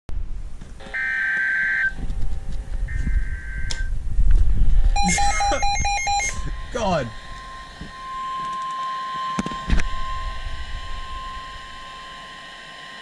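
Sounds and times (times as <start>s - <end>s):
low rumbling handling noise: 1.9s - 5.0s
screechy digital data bursts: 2.9s - 3.8s, 4.9s - 10.4s
rapid pulsing alert beeps: 5.0s - 7.1s.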